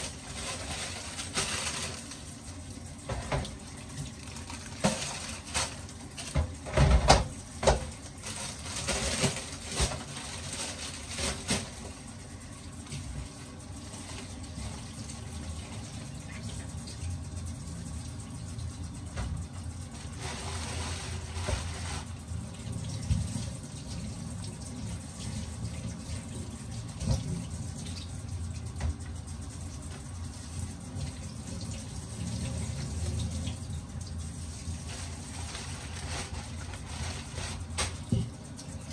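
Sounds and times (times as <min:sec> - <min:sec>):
plastic bags rustling: 0:00.0 - 0:02.3, 0:04.1 - 0:06.4, 0:08.1 - 0:11.8, 0:34.8 - 0:38.0.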